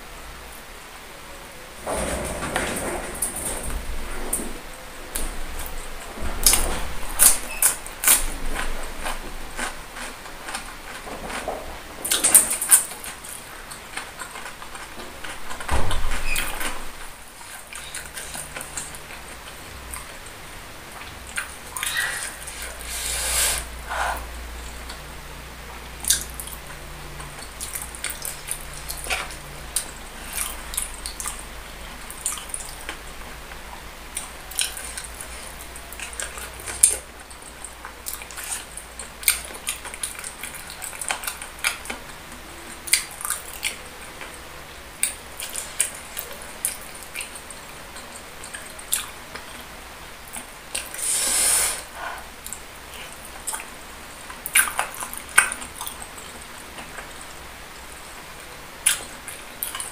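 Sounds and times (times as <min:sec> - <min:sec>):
hissing sound: 0:22.5 - 0:24.3, 0:51.0 - 0:52.0
wet chewing and lip-smacking: 0:26.0 - 0:33.0, 0:34.1 - 0:44.2, 0:45.0 - 0:49.6, 0:52.1 - 0:57.3, 0:58.8 - 0:59.9.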